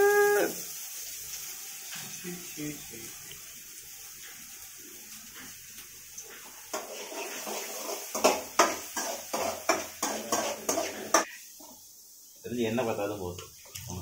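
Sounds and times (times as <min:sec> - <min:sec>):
cookware clattering and scraping: 0:06.7 - 0:11.4.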